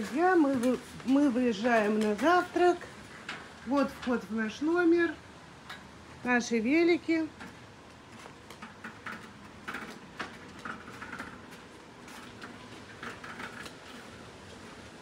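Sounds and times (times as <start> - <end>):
bicycles ticking and clicking: 7.4 - 15.0.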